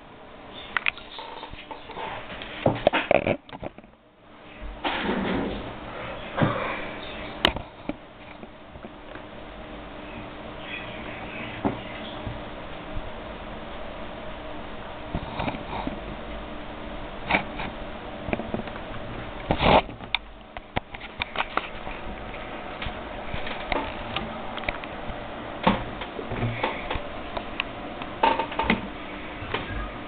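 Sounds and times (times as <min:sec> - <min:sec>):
steady hum: 0:00.0 - 0:30.0
clicks and scratches near microphone: 0:00.6 - 0:04.0, 0:07.1 - 0:09.3, 0:15.1 - 0:16.1, 0:17.2 - 0:28.8.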